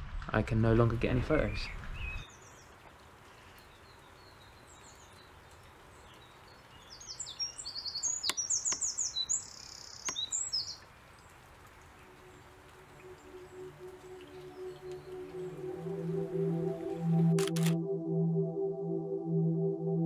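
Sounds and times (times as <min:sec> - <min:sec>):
faint steady hiss: 0:00.1 - 0:17.4
songbird chirping: 0:01.3 - 0:17.6
sharp clicks: 0:17.4 - 0:17.8.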